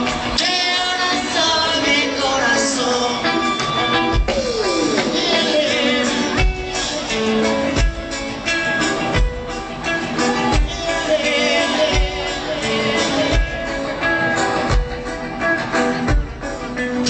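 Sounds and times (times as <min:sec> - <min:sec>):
person singing: 0:00.0 - 0:07.9, 0:09.9 - 0:15.2
live band music over pa: 0:00.0 - 0:17.0.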